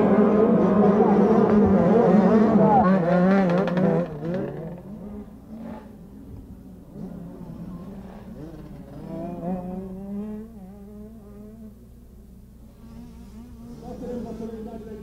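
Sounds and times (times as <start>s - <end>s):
motocross bike engines revving: 0.0s - 11.8s, 12.6s - 15.0s.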